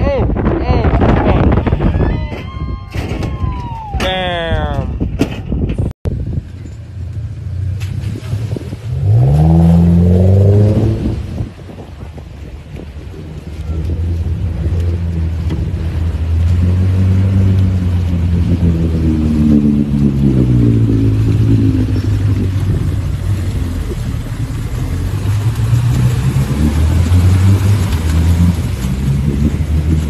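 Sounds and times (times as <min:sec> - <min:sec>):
water churning: 0:07.2 - 0:30.0
engine revving under load: 0:07.3 - 0:11.5, 0:13.8 - 0:30.0.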